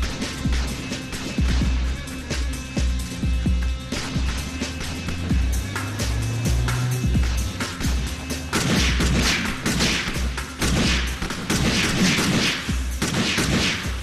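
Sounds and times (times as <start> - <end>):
rapid gunfire: 0.0 - 2.2, 3.9 - 5.2, 7.1 - 14.0
dramatic music with heavy beat: 0.0 - 14.0.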